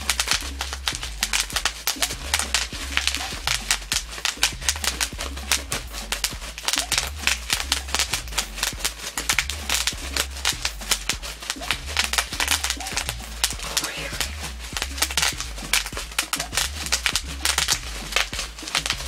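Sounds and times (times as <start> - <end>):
background music with low bass: 0.0 - 19.0
bubble wrap popping: 0.0 - 19.0.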